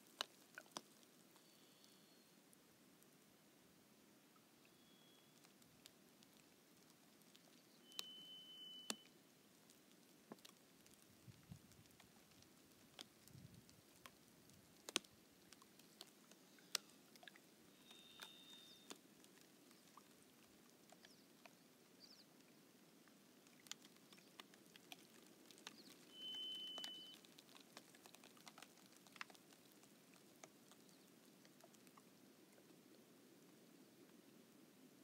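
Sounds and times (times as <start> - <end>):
ice crackling: 23.6 - 31.0
high whistled notes: 26.1 - 27.2.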